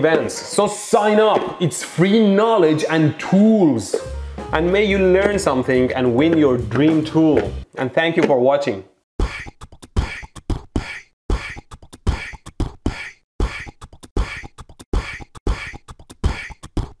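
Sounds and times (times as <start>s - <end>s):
dry percussive beat: 3.9s - 7.7s.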